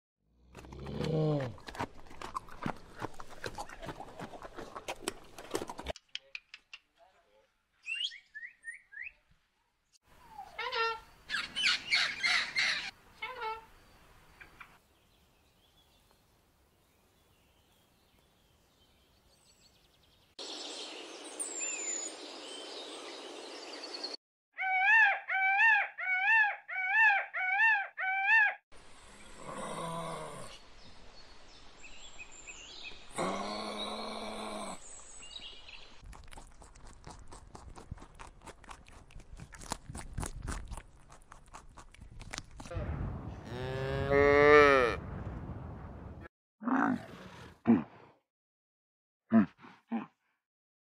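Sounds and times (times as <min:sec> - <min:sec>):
peacock calling: 0:10.2 - 0:13.7, 0:24.6 - 0:28.6
macaw squawking: 0:10.4 - 0:13.6, 0:24.6 - 0:28.6.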